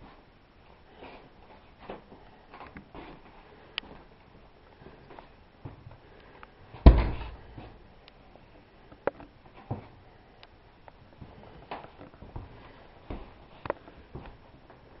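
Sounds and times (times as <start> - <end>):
loud thump: 6.8 - 7.4.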